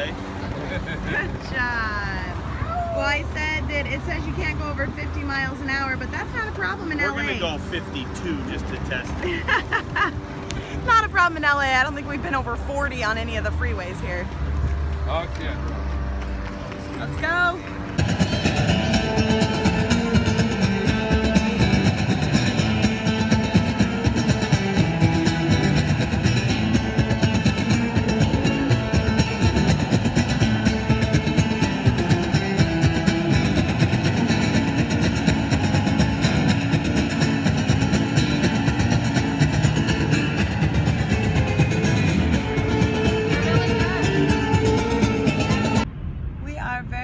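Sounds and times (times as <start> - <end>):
amplified acoustic guitars: 17.2 - 45.8.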